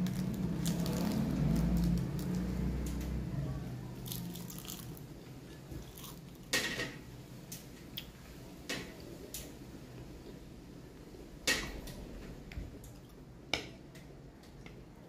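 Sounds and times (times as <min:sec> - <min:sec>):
person crunching and chewing food: 0:00.0 - 0:02.5, 0:04.0 - 0:06.5.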